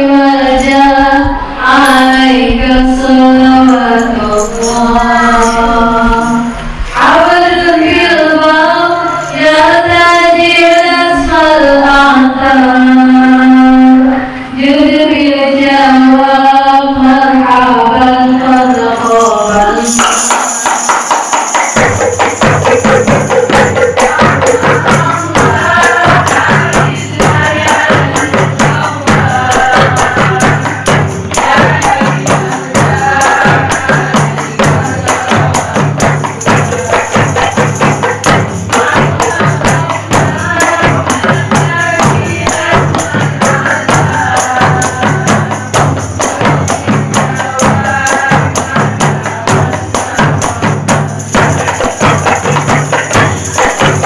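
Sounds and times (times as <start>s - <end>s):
frame drums playing rhythm: 18.8s - 54.0s.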